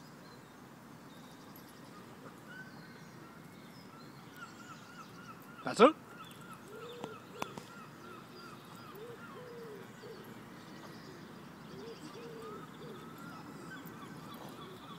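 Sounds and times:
slower low bird calls: 0.0s - 14.9s
quick repeated bird calls: 5.1s - 10.2s.

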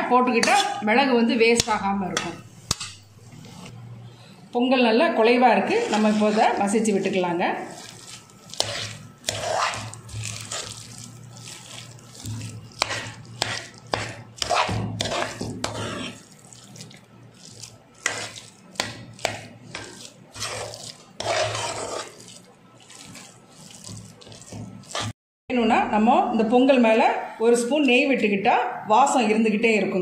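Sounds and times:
wet squelching and scraping: 5.7s - 25.2s.

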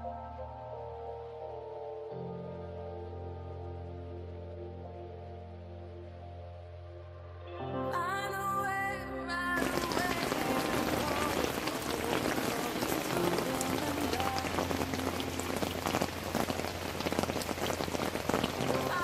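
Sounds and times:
heavy rain on canopy and lake: 9.6s - 19.0s
water streaming off canopy: 9.6s - 19.0s.

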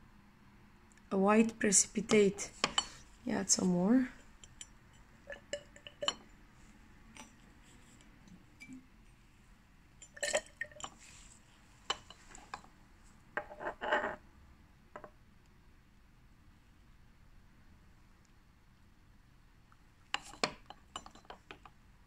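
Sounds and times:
glass test tubes clinking: 5.3s - 6.3s, 10.0s - 11.2s.

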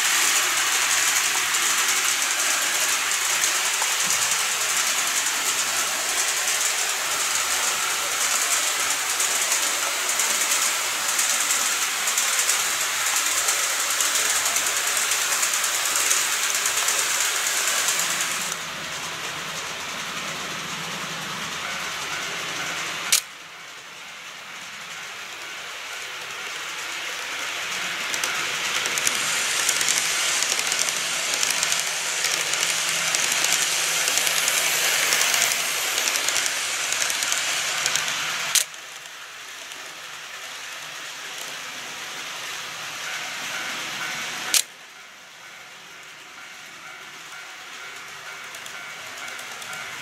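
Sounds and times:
model train wheels on track: 0.0s - 50.0s
sharp clicks: 28.1s - 39.1s.

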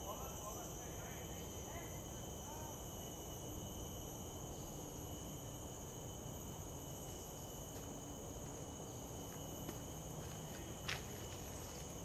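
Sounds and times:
insects chorus: 0.0s - 12.0s
footsteps on leafy path: 9.6s - 12.0s.

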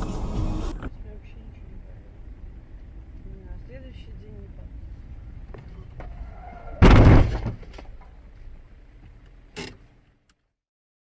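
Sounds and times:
car driving rumble: 0.0s - 10.4s
car hitting metal guardrail: 6.5s - 8.1s
short bang: 6.7s - 7.7s.

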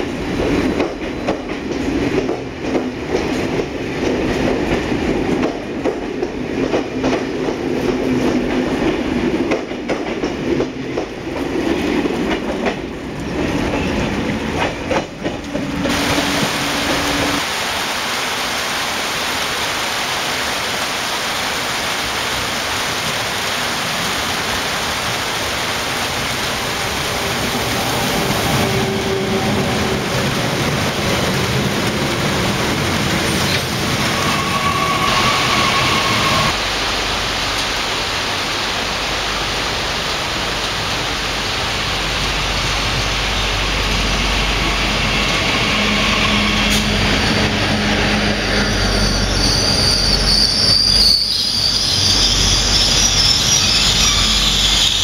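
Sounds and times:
train running rumble: 0.0s - 17.5s, 23.6s - 55.0s
train whine: 0.0s - 17.8s, 25.1s - 55.0s
high-pitched wheel squeal: 34.1s - 36.6s, 45.6s - 47.4s, 48.2s - 55.0s.

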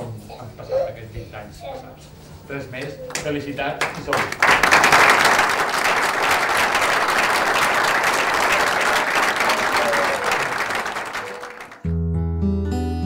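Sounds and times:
audience applauding: 3.1s - 11.9s.

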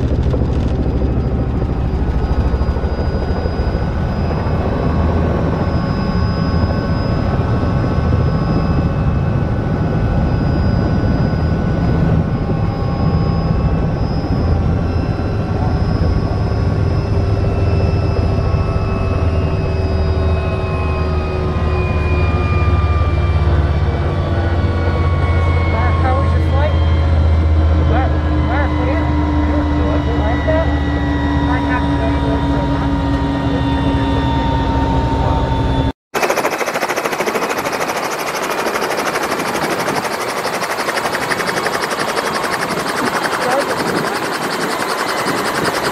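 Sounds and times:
helicopter rotor thrum: 0.0s - 19.2s, 36.2s - 45.9s.

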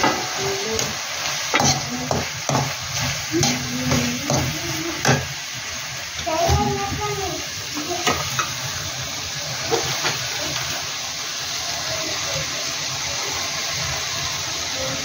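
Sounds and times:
food sizzling in a frying pan: 0.0s - 15.0s
metal spatula scraping: 0.7s - 5.3s.

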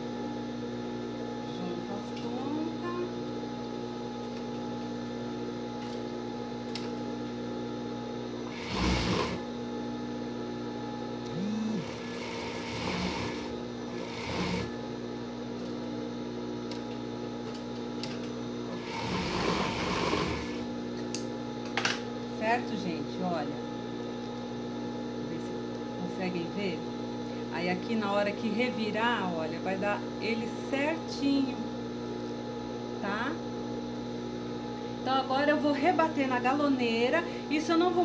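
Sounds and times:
overlock machine motor hum: 8.2s - 9.6s, 10.6s - 15.5s
machine stitching: 8.5s - 9.4s, 11.8s - 14.7s, 18.8s - 20.6s.

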